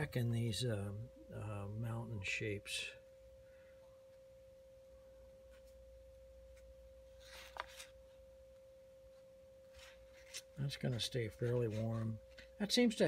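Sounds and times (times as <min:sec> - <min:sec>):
faint steady high tone: 0:00.0 - 0:13.0
brush stroke on paper: 0:09.7 - 0:12.2.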